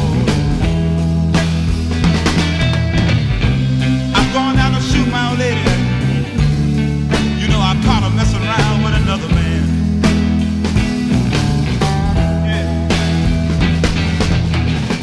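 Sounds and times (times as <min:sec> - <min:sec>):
pitch-bending lead melody: 0:00.0 - 0:15.0
rock band playing: 0:00.0 - 0:15.0.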